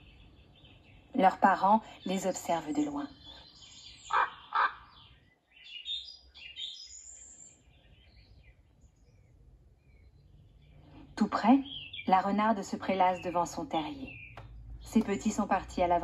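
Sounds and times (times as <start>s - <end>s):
small birds chirping: 0.0s - 16.0s
crow cawing: 4.1s - 5.0s.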